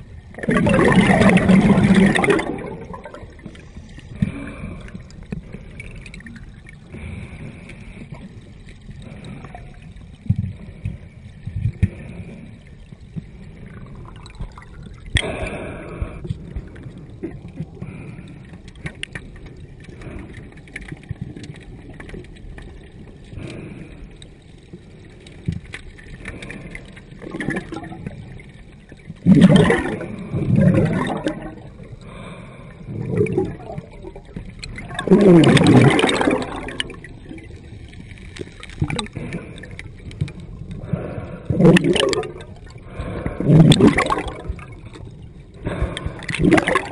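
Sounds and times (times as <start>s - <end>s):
bubbles streaming: 0.0s - 7.1s, 13.2s - 18.0s, 26.0s - 46.9s
muffled underwater rush: 0.0s - 46.9s
water gurgling: 0.0s - 46.9s.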